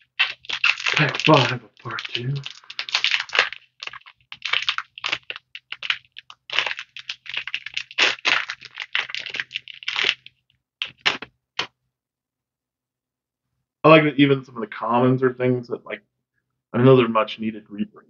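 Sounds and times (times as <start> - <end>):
foil wrapper crinkling: 0.0 - 11.3.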